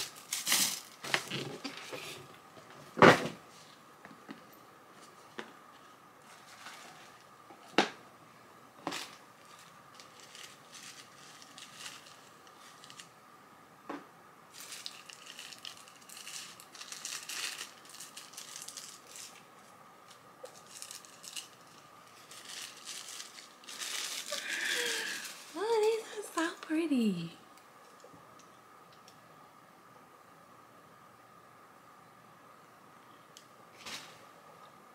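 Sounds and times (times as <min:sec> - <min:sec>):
paper wrapping crinkling: 0:00.0 - 0:02.0, 0:06.2 - 0:07.3, 0:08.8 - 0:13.2, 0:14.5 - 0:26.8.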